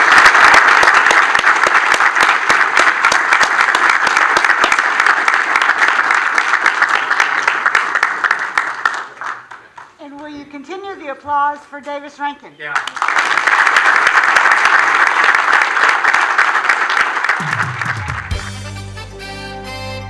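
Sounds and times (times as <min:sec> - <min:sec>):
audience applauding: 0:00.0 - 0:10.0, 0:12.7 - 0:18.8.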